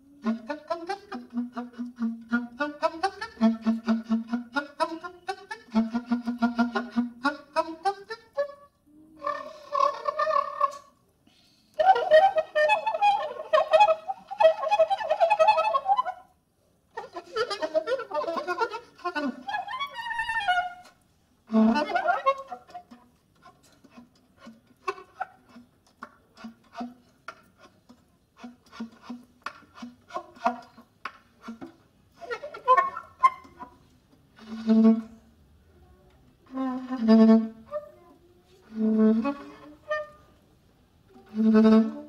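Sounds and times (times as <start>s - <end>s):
soprano saxophone improvising: 9.1s - 10.9s, 34.4s - 35.2s, 36.4s - 40.4s, 41.2s - 42.0s.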